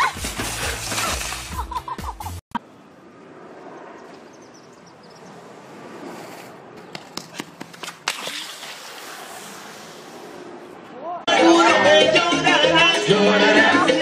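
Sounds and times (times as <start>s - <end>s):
skateboard wheels rolling on asphalt: 2.6s - 11.2s
skateboard clacks: 6.8s - 8.2s.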